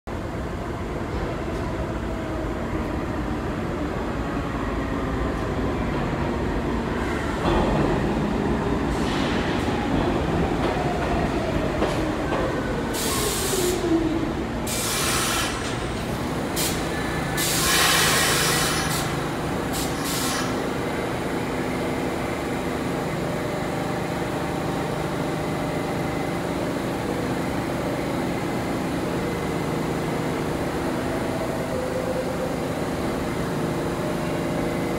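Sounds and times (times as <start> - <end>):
steady train hum: 0.1 - 34.9
train wheels rumbling on rails: 0.1 - 34.9
brakes hissing and squealing: 14.7 - 20.7.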